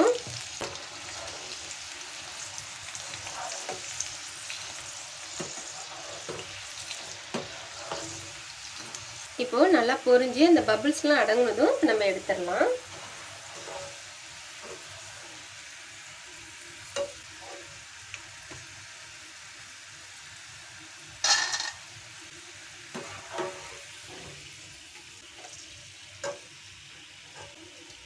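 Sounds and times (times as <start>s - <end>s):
food sizzling in oil: 0.0s - 28.0s.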